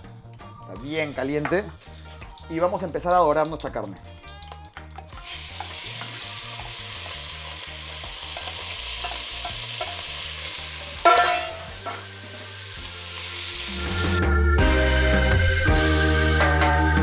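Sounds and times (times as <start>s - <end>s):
beef sizzling in hot oil: 0.0s - 14.2s
metal clank: 11.0s - 12.1s.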